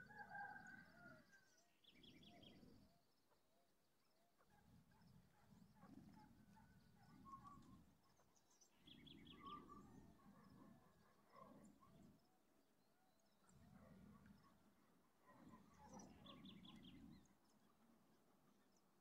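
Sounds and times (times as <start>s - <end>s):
distant bird chirps: 5.4s - 12.1s.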